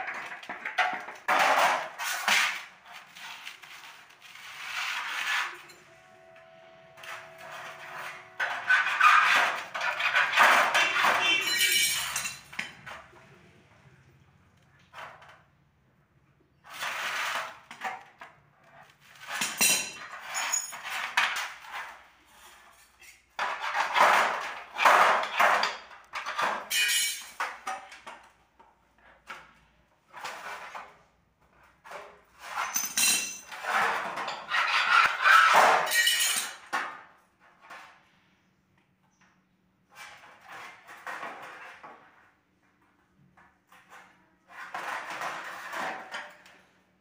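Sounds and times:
metal sheet clinking and rattling: 7.0s - 13.0s, 19.2s - 21.8s, 32.4s - 36.6s.

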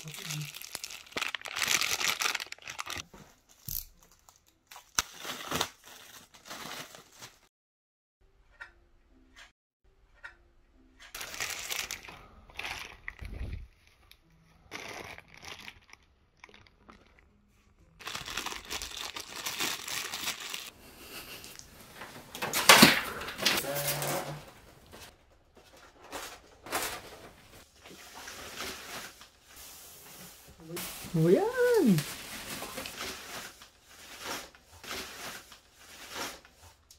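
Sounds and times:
plastic packaging crinkling: 0.0s - 7.5s, 11.2s - 17.2s, 18.0s - 20.7s, 30.8s - 36.4s.

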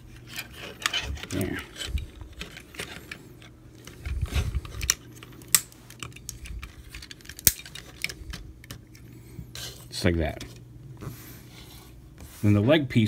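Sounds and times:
plastic toy parts clicking: 4.6s - 9.0s.

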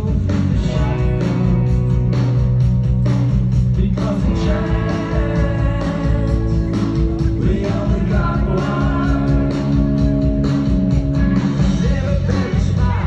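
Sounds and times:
person singing: 0.0s - 1.7s, 3.7s - 9.9s, 11.6s - 13.0s
guitar: 0.0s - 13.0s
rock band playing live: 0.0s - 13.0s.

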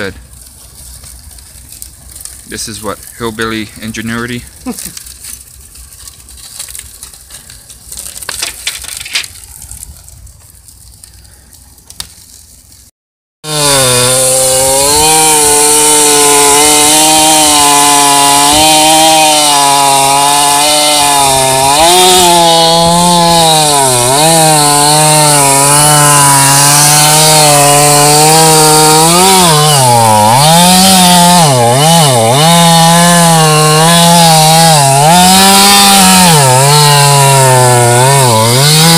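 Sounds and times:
chainsaw cutting log: 0.0s - 9.4s, 13.4s - 38.9s
wood fire crackling: 0.0s - 12.9s.

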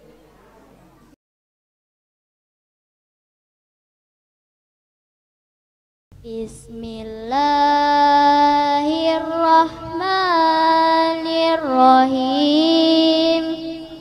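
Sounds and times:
boy chanting recitation: 6.2s - 14.0s.

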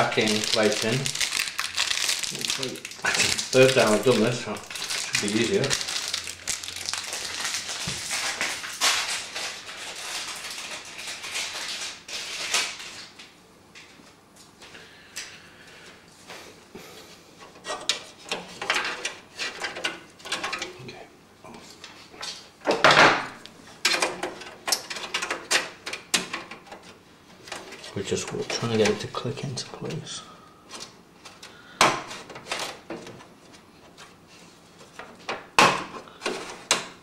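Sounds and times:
rustling and scraping: 30.7s - 35.5s.

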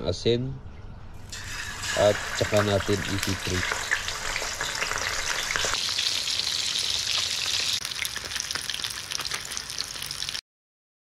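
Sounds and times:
fish sizzling in hot oil: 1.2s - 10.4s.

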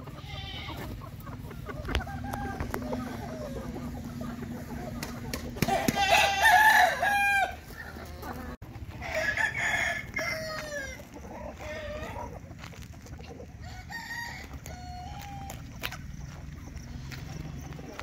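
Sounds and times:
hens clucking: 0.0s - 18.0s
rooster crowing: 5.6s - 7.7s, 9.0s - 11.0s, 13.6s - 15.6s.

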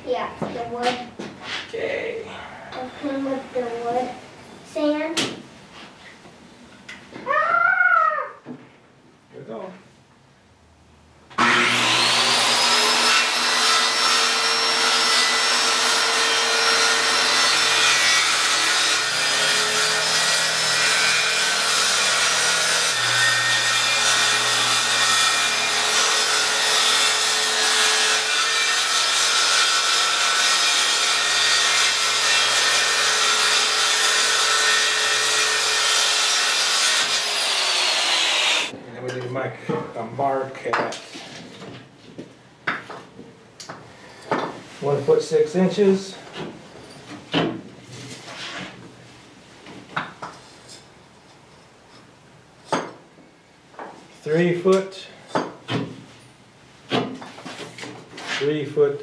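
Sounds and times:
power saw cutting wood sheet: 11.4s - 38.7s.

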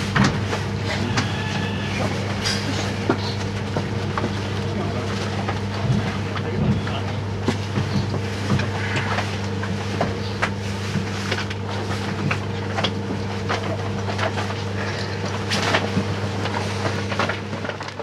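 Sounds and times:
train car low hum: 0.0s - 18.0s.

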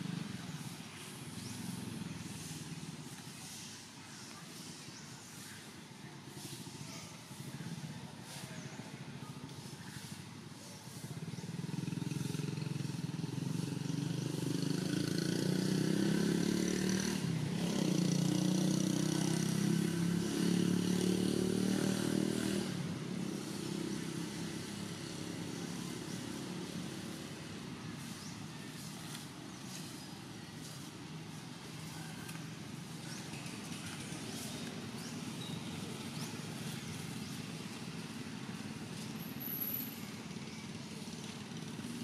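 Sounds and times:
motorbike engine passing by: 10.8s - 42.0s.

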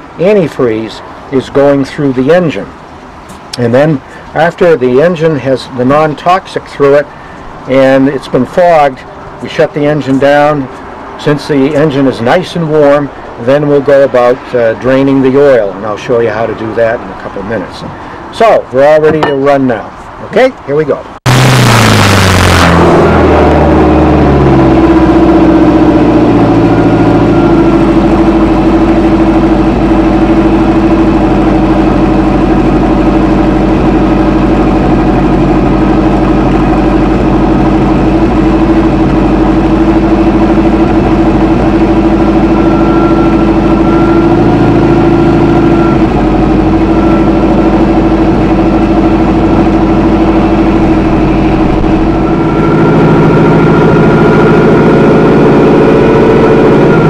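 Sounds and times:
boat engine idling: 21.3s - 57.0s.

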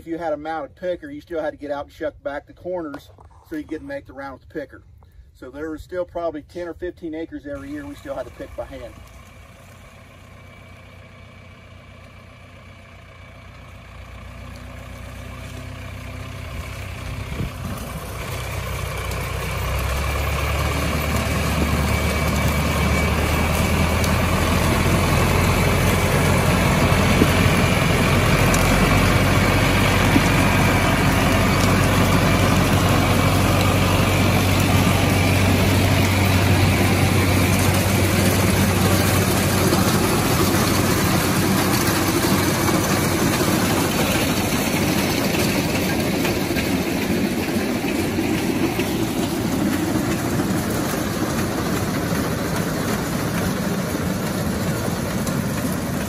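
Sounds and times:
tractor engine running: 2.6s - 56.0s
corn picker mechanism clattering: 7.5s - 9.3s, 16.4s - 56.0s.

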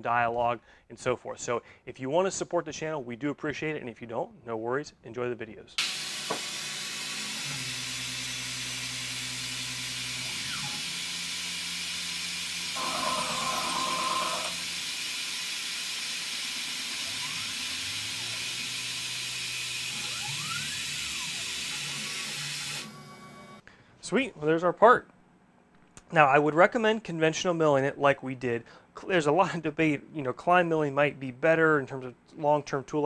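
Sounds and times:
saw cutting metal: 5.8s - 23.6s.

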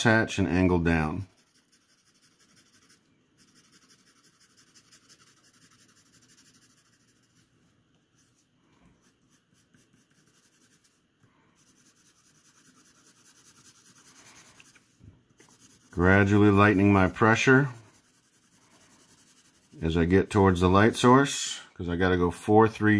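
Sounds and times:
pencil scratching on paper: 0.0s - 20.7s.

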